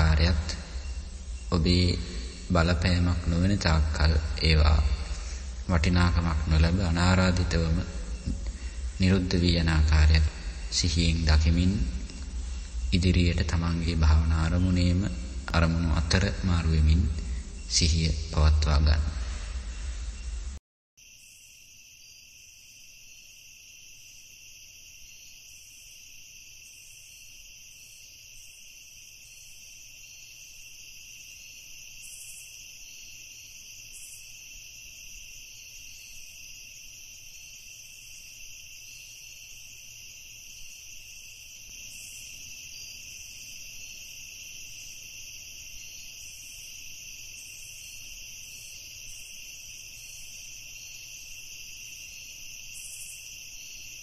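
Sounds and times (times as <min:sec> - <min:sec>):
crickets chirring: 0:00.0 - 0:54.0.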